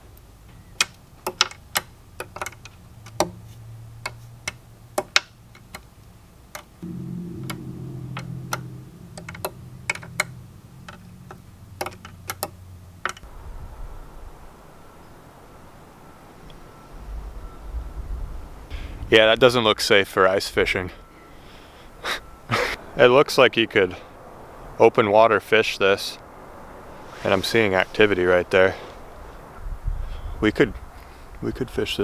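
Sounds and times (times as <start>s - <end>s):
low hum: 6.8s - 13.0s.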